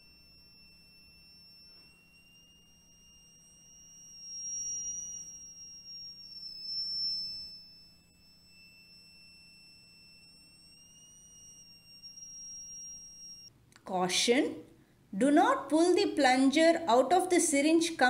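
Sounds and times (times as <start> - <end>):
high-pitched buzzer whine: 0.0 - 13.5.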